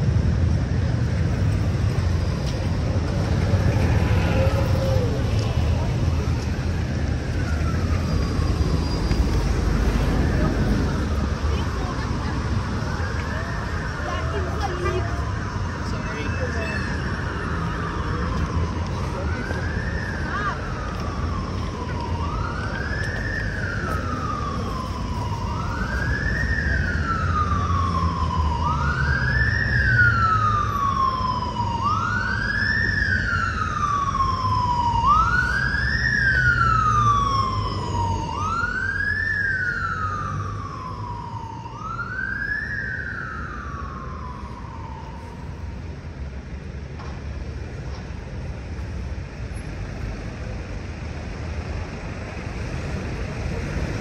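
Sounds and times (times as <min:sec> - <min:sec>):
low traffic rumble: 0:00.0 - 0:54.0
emergency siren wailing: 0:00.2 - 0:46.8.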